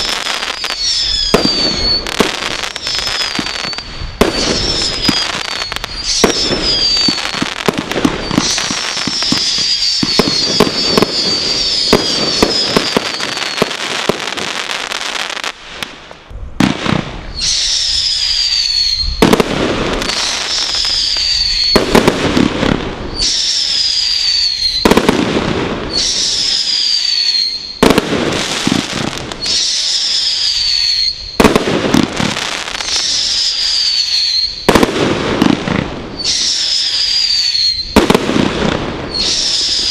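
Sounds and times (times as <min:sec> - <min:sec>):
high falling whistles: 0:00.0 - 0:13.8, 0:17.3 - 0:19.3, 0:20.0 - 0:22.0, 0:23.1 - 0:25.0, 0:25.9 - 0:27.8, 0:29.4 - 0:31.5, 0:32.7 - 0:34.7, 0:36.2 - 0:38.1, 0:39.1 - 0:39.9
firework bangs and crackling: 0:00.0 - 0:39.9.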